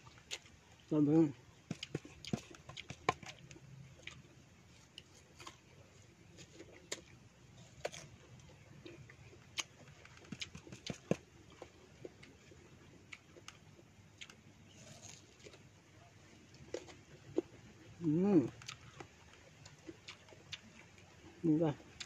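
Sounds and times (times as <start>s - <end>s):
person chewing fruit: 0.0s - 22.0s.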